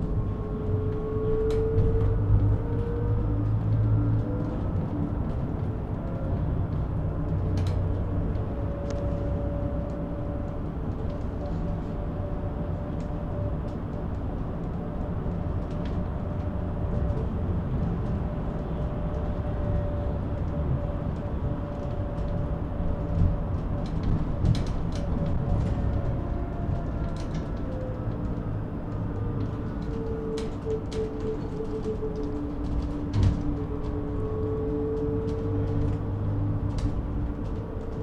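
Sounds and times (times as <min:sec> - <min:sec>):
road and tyre rumble: 0:00.0 - 0:38.0
interior clicks and rattles: 0:12.6 - 0:38.0.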